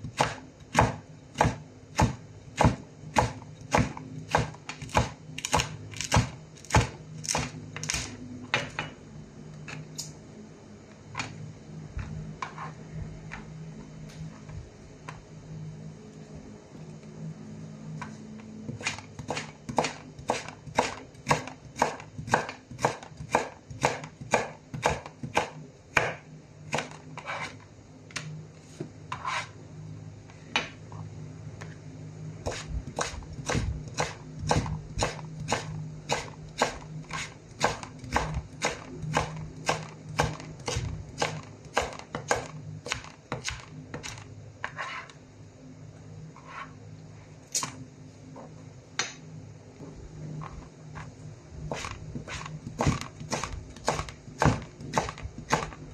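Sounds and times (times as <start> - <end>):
knife chopping on cutting board: 0.0 - 8.8, 18.8 - 26.2, 32.4 - 44.8, 51.7 - 55.8.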